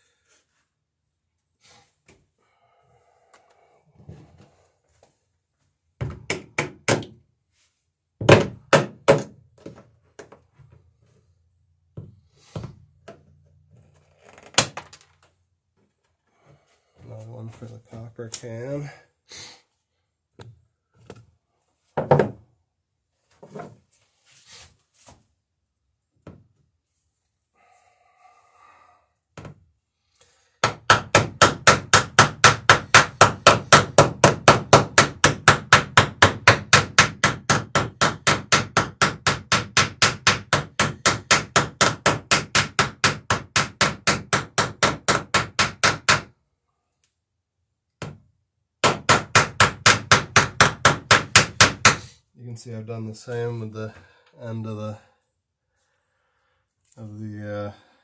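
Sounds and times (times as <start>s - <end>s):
hammer riveting nails: 8.2s - 9.4s, 14.3s - 15.0s, 30.6s - 46.3s, 48.8s - 52.0s.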